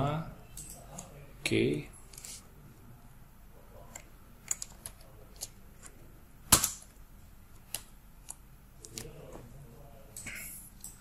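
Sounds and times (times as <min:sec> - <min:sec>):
computer keys clicking: 0:00.5 - 0:01.1.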